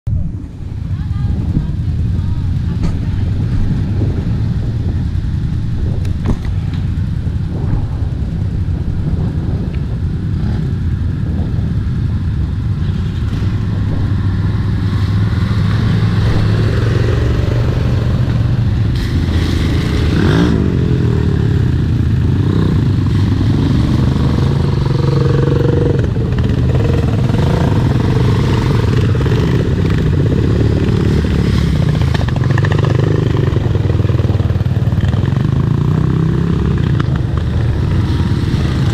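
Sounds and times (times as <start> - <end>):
quad bike engines running: 0.2 - 38.9
engine revving: 13.2 - 38.9.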